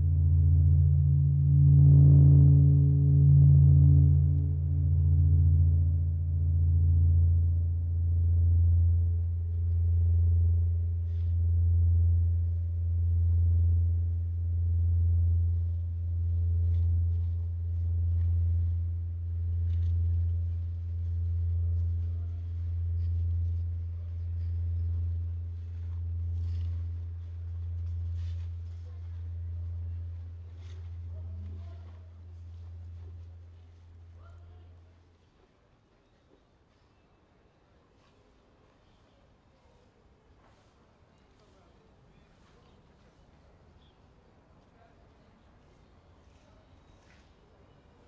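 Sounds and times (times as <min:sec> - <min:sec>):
deep pulsing drone: 0:00.0 - 0:34.8.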